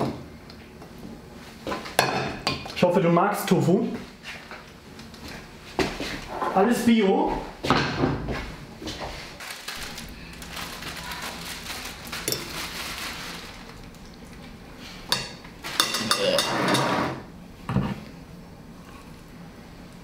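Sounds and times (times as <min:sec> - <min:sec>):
cutlery clinking on plates: 0:15.1 - 0:17.0.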